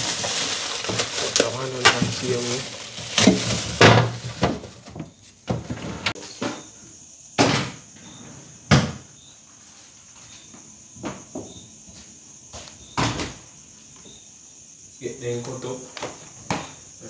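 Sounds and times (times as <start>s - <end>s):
plastic containers knocking: 0.0s - 6.1s
insect chirps: 0.0s - 17.0s.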